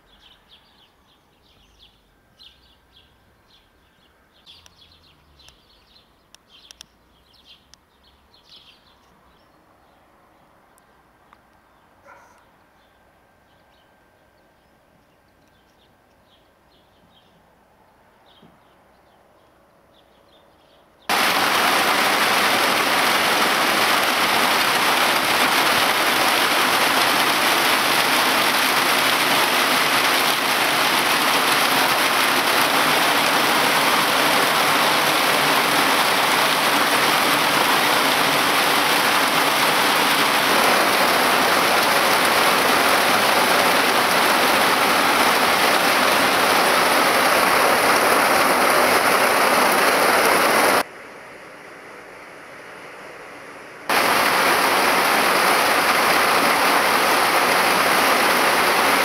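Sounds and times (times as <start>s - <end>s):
torrential rain hissing: 21.1s - 50.9s, 53.8s - 59.0s.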